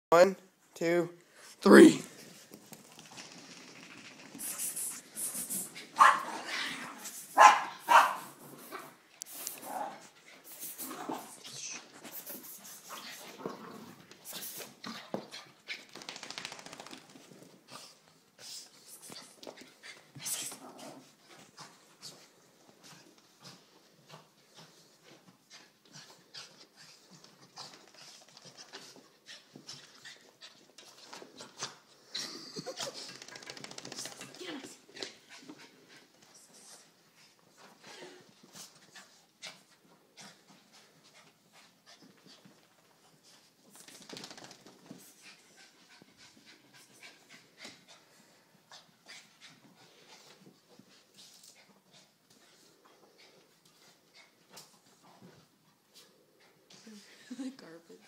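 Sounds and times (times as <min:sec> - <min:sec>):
dog making sharp bursts: 0:04.4 - 0:06.3
dog panting: 0:17.2 - 0:32.0, 0:32.6 - 0:56.8.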